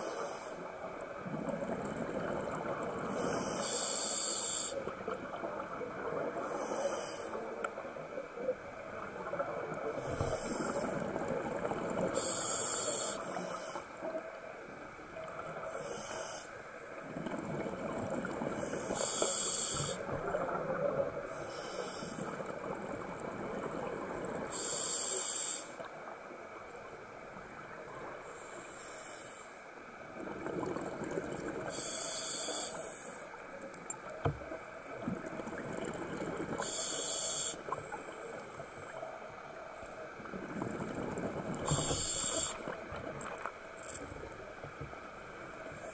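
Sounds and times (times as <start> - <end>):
bubbles rumbling underwater: 1.2 - 3.3, 17.0 - 18.7, 30.1 - 31.7, 34.4 - 36.7, 40.2 - 43.5
diver breathing through regulator: 41.6 - 42.8.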